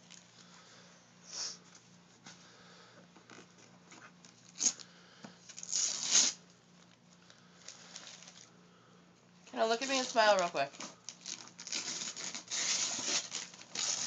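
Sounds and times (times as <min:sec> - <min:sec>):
wrapping paper tearing and crumpling: 0:04.3 - 0:04.8, 0:05.5 - 0:06.4, 0:07.6 - 0:08.5, 0:09.7 - 0:14.0.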